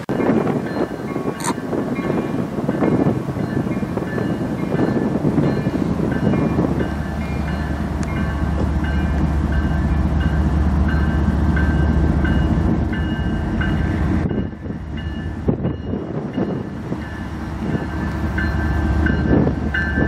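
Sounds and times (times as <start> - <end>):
locomotive engine rumble: 0.0 - 20.0.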